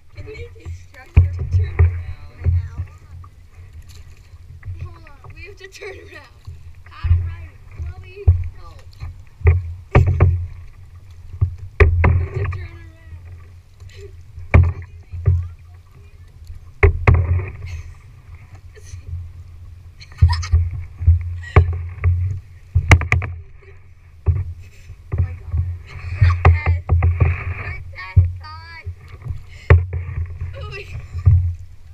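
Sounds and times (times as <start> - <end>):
water splashing from paddle strokes: 0.0 - 31.9
sharp knocks: 9.4 - 10.6, 11.4 - 12.7, 14.5 - 15.5, 16.8 - 17.6, 20.5 - 23.4, 25.1 - 28.3.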